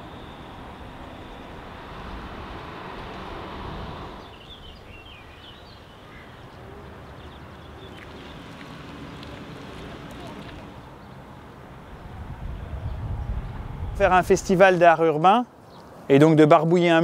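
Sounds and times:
high bird chirps: 4.1 - 6.4.

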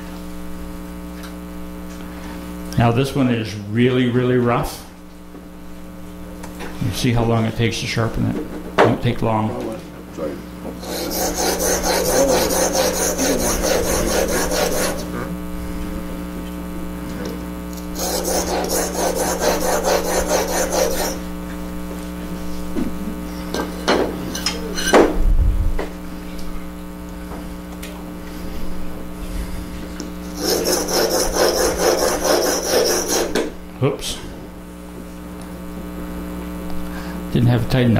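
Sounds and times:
steady hum: 0.0 - 37.9
blade scraping on sharpening stone: 10.8 - 15.1, 18.0 - 21.2, 30.4 - 33.4.

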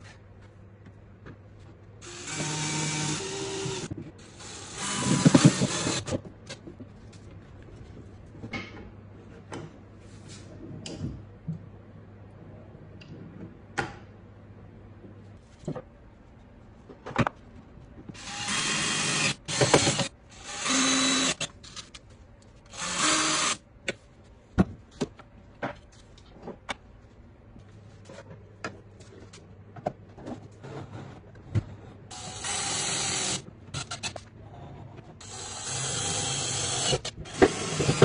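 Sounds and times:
cordless drill driving screws: 2.0 - 6.1, 18.2 - 21.5, 22.7 - 23.6, 32.1 - 34.0, 35.2 - 38.0.

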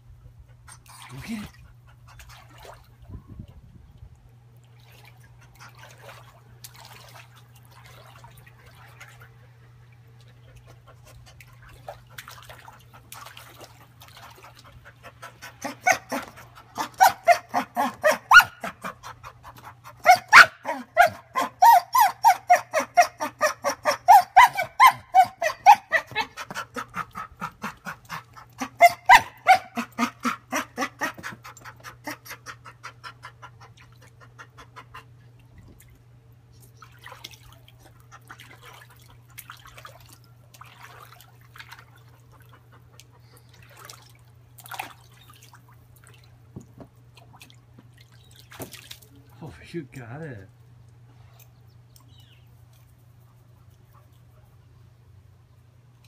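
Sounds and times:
dog whining: 15.6 - 18.9, 20.0 - 26.5, 28.6 - 31.3.

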